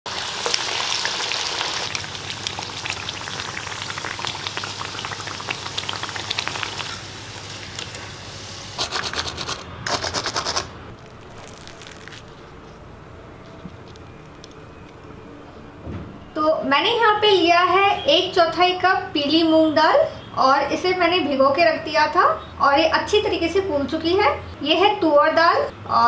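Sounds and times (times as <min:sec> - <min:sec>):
fritters deep-frying in hot oil: 0:00.1 - 0:08.3
rapid oil crackling: 0:10.9 - 0:12.8.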